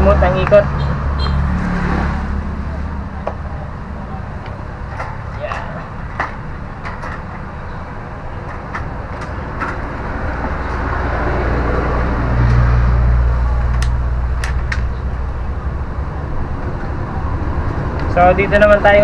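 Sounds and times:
vehicle engine passing by: 0.0 - 6.1, 9.4 - 19.0
traffic rumble: 0.0 - 19.0.

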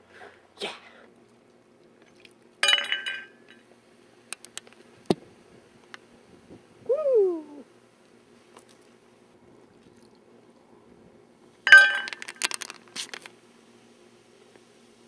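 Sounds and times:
bottle clinking rattle: 2.6 - 3.4, 11.7 - 13.2.

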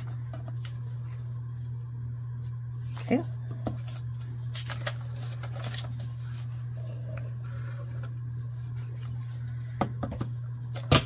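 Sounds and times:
paper rustling and handling: 0.0 - 1.8, 2.8 - 9.6
low electrical hum: 0.0 - 11.0.

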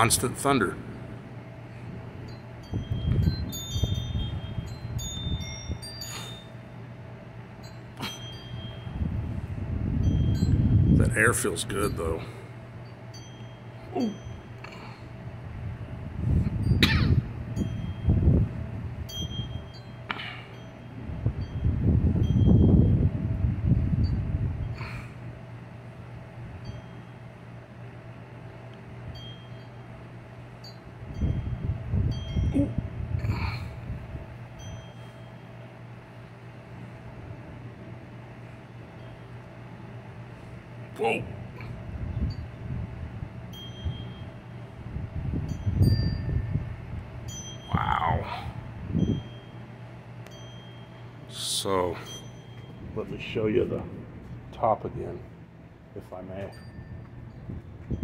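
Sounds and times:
gusty wind: 0.0 - 6.0, 8.4 - 13.1, 15.0 - 20.1, 20.7 - 26.8, 30.9 - 34.9, 39.6 - 50.2, 52.7 - 58.0
wind chimes tinkling: 2.2 - 15.3, 17.5 - 18.4, 19.0 - 23.0, 26.6 - 27.6, 29.0 - 36.0, 43.4 - 53.7, 56.0 - 58.0
storm wind: 8.8 - 11.6, 21.0 - 25.0.

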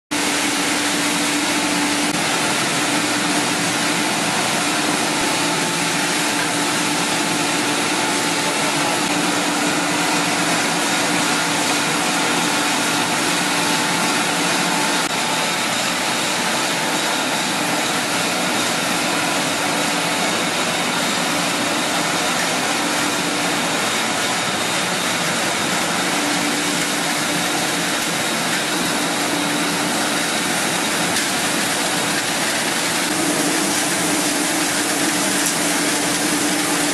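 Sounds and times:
production line machinery hiss and hum: 0.2 - 36.9.

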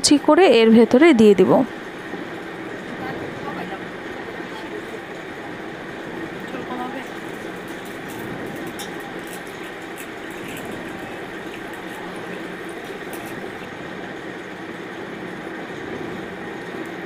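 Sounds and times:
pot simmering: 3.8 - 17.0.

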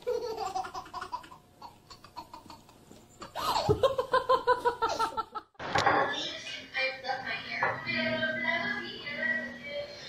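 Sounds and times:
baby laughing: 0.0 - 5.3.

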